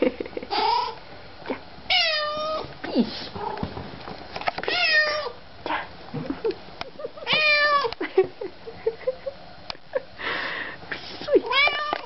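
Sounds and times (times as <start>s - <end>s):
cat meowing: 4.7s - 5.4s, 11.5s - 12.0s.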